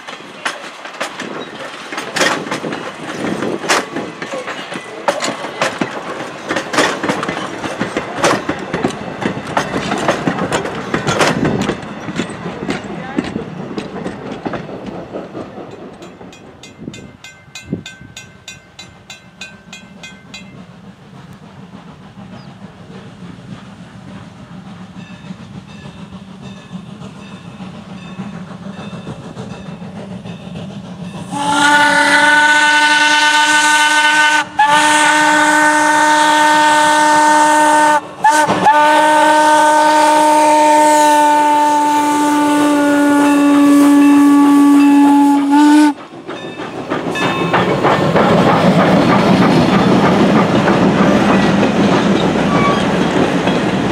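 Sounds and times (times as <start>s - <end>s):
train rumble: 0.0s - 53.9s
train wheel clatter: 0.0s - 53.9s
steam locomotive whistle: 31.2s - 46.0s, 52.4s - 53.0s.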